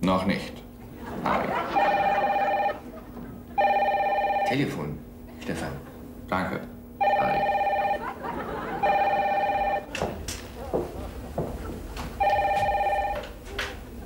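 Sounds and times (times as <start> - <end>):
telephone ringing: 1.5 - 4.8, 7.0 - 9.9, 12.2 - 13.4.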